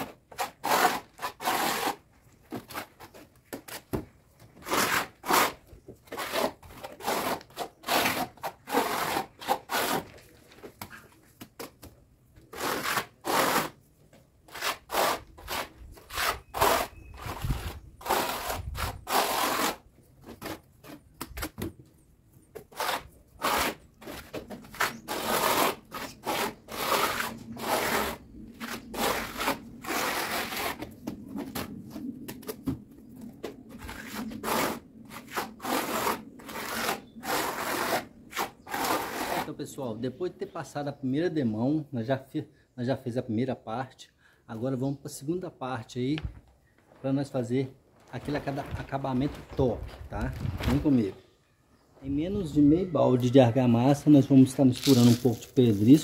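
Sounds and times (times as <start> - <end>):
tool scraping mortar on brick: 0.0 - 11.1, 12.4 - 13.8, 14.4 - 21.8, 22.5 - 31.7, 33.7 - 39.6, 54.7 - 56.0.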